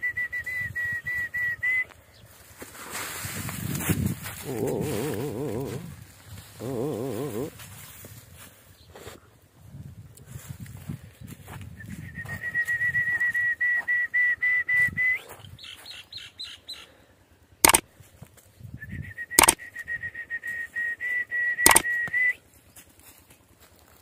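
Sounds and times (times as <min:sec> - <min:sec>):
sharp clicks: 0:17.6 - 0:17.9, 0:19.4 - 0:19.6, 0:21.6 - 0:22.2.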